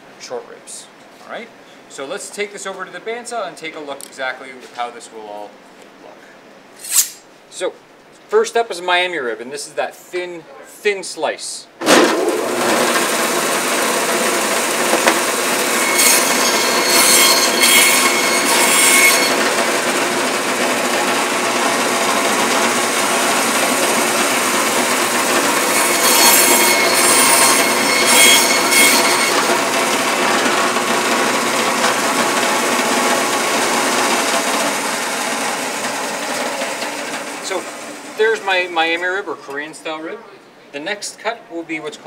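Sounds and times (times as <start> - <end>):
meat bandsaw running: 11.9 - 38.2
saw cutting through bone: 12.6 - 30.9.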